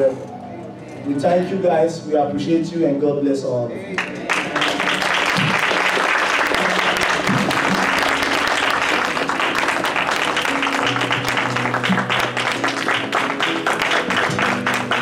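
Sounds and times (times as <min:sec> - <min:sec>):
music with held low notes: 0:00.0 - 0:15.0
congregation clapping and applauding: 0:03.9 - 0:15.0.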